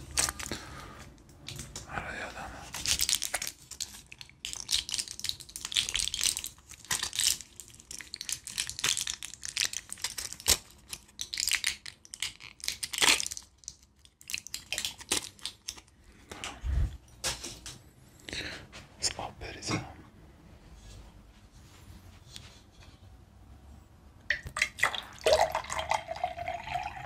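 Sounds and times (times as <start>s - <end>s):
wrapper crinkling in hands: 0.0s - 0.6s, 2.6s - 16.4s.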